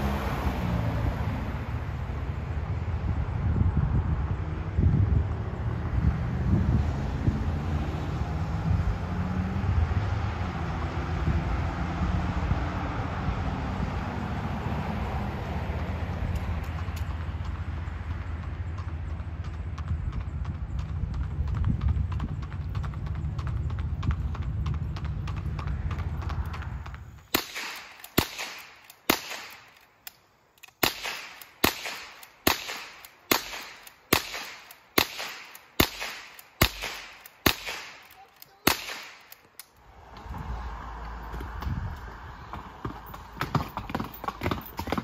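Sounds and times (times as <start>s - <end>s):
steady low rumble: 15.3s - 38.0s
hoof clops on pavement: 16.1s - 27.3s, 41.0s - 45.0s
gunshots: 27.3s - 29.8s, 30.8s - 39.4s.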